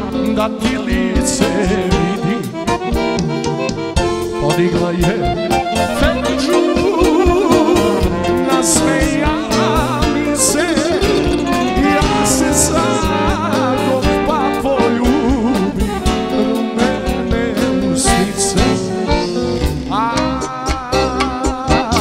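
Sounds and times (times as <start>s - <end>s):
live band playing: 0.0s - 22.0s
ornamented lead melody: 0.0s - 22.0s.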